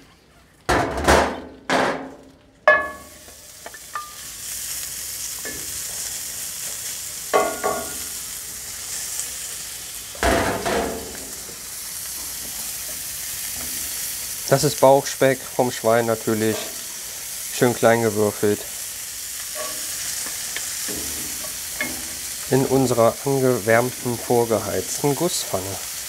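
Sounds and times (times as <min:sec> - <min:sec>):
spatula clinking and scraping pan: 0:02.7 - 0:04.3, 0:07.3 - 0:08.2, 0:19.4 - 0:23.0
meat sizzling in a skillet: 0:02.7 - 0:26.0.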